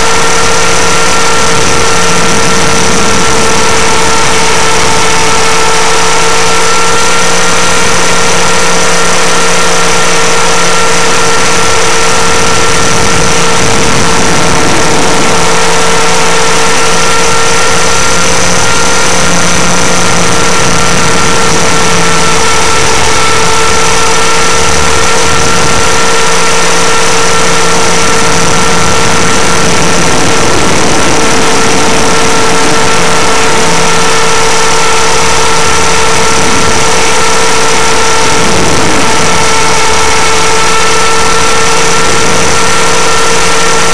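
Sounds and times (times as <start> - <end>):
model aircraft motor whine: 0.0 - 43.9
rushing noise: 0.0 - 43.9.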